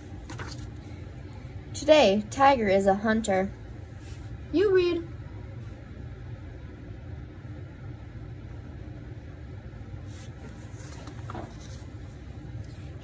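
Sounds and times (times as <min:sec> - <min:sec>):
low room hum: 0:00.0 - 0:13.0
paper page turning: 0:00.2 - 0:00.8, 0:10.1 - 0:12.1.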